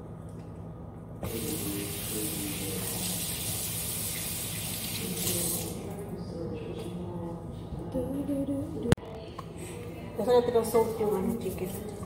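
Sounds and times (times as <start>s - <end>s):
water running into sink: 1.2s - 5.8s.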